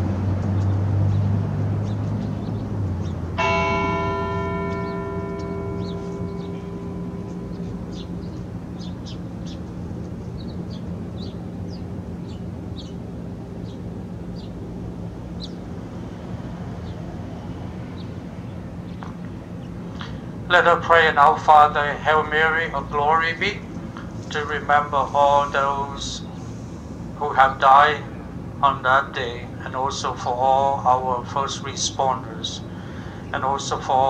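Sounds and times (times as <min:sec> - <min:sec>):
low hum: 0:00.0 - 0:34.0
bell ringing: 0:03.4 - 0:09.0.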